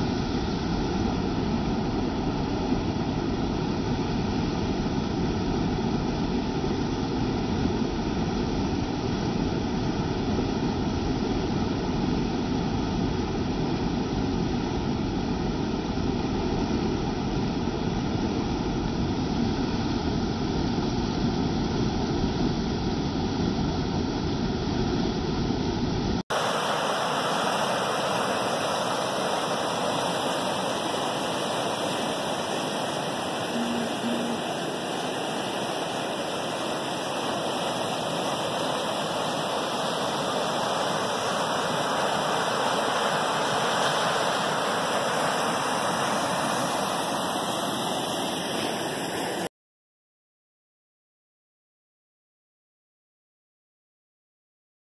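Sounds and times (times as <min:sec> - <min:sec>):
fast-flowing water rushing: 0:26.3 - 0:49.5.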